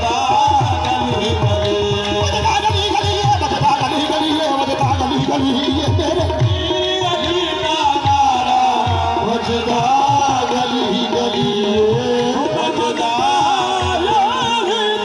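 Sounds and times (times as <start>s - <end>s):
tabla drumming: 0.0s - 15.0s.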